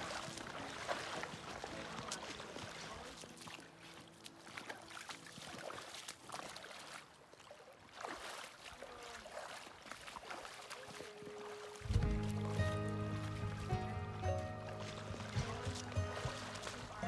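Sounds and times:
shallow river flowing: 0:00.0 - 0:17.0
splashes of people wading: 0:00.0 - 0:17.0.

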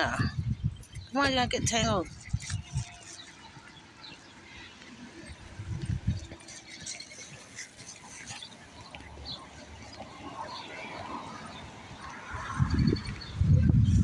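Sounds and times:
footsteps: 0:00.8 - 0:11.4.

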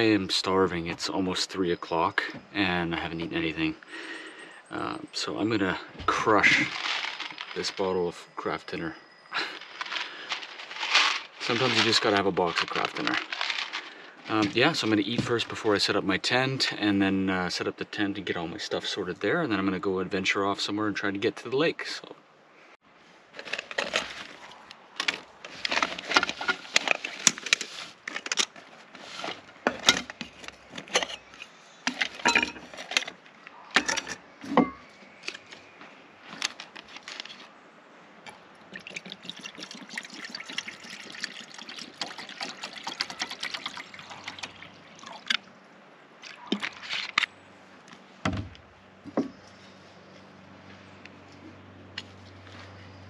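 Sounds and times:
water pouring into pot: 0:38.8 - 0:45.2.

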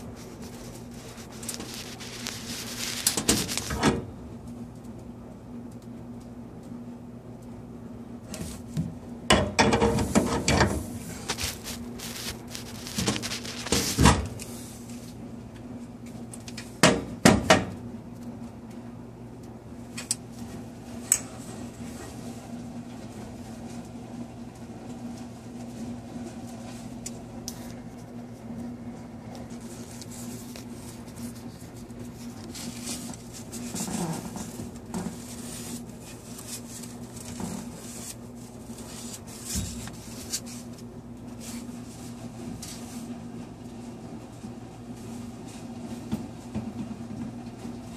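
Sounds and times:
paper towel rustling: 0:00.0 - 0:04.0, 0:10.0 - 0:15.2, 0:24.9 - 0:46.5
steady low hum: 0:00.0 - 0:47.9.

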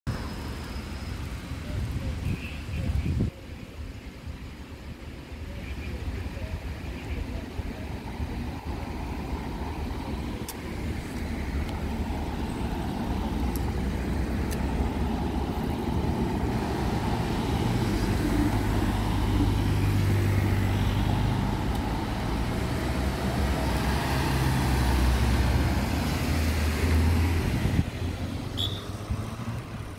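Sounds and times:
cars driving past: 0:07.8 - 0:29.9.

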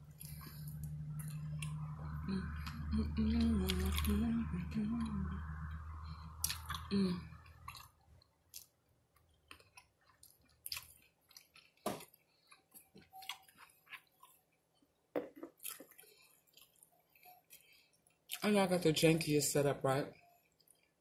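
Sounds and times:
person chewing food: 0:00.0 - 0:04.3, 0:05.0 - 0:18.4, 0:20.1 - 0:21.0
mouth clicks and crunches: 0:06.4 - 0:07.9, 0:09.4 - 0:14.3.

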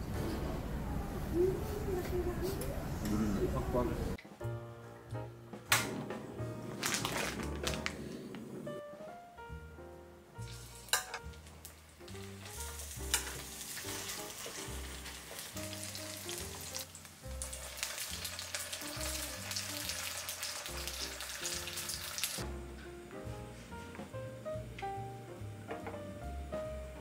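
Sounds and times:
background music with plucked notes: 0:04.2 - 0:07.8, 0:08.8 - 0:27.0
dumplings sizzling in oil: 0:10.4 - 0:22.4.

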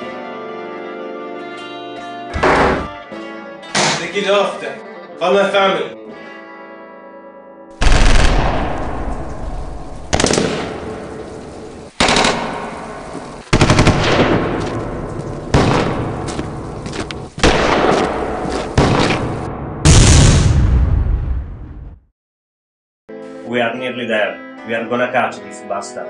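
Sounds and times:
automatic gunfire bursts: 0:07.8 - 0:08.8, 0:10.1 - 0:11.0, 0:12.0 - 0:12.8, 0:13.5 - 0:14.6.

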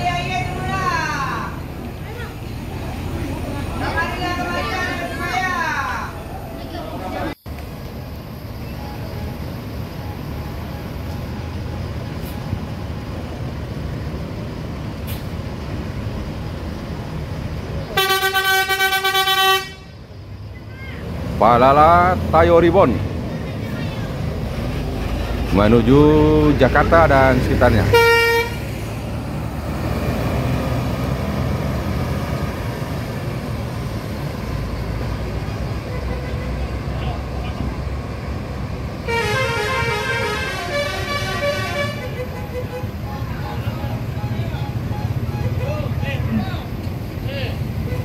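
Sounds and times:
diesel bus engine droning: 0:00.0 - 0:48.0
short faint hisses: 0:15.0 - 0:15.4
bus horn: 0:17.8 - 0:20.0, 0:27.7 - 0:28.8, 0:35.6 - 0:37.7, 0:39.0 - 0:46.7, 0:47.8 - 0:48.0.

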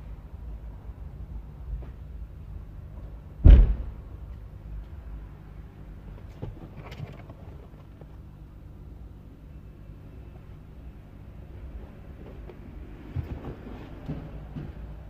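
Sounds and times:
low workshop rumble: 0:00.0 - 0:15.0
loud thump: 0:03.4 - 0:04.0.

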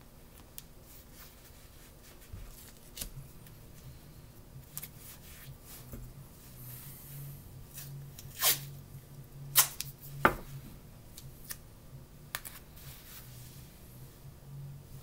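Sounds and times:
adhesive tape ripping: 0:02.6 - 0:03.2, 0:07.8 - 0:08.8, 0:09.5 - 0:10.0.

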